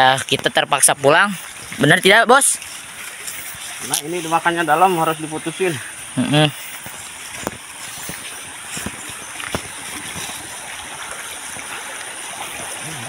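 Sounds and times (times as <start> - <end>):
small stream running: 0.0 - 13.0
soft footsteps on grass: 6.4 - 12.8.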